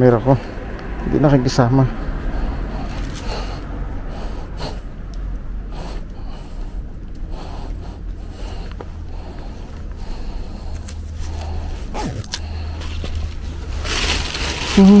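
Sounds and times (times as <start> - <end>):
low rumble: 0.0 - 15.0
plastic bag rustling and crinkling: 12.1 - 15.0.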